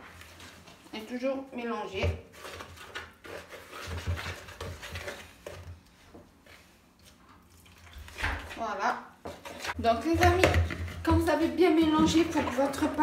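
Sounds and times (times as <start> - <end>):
utensil scraping plastic bowl: 1.9 - 5.8, 8.0 - 13.0.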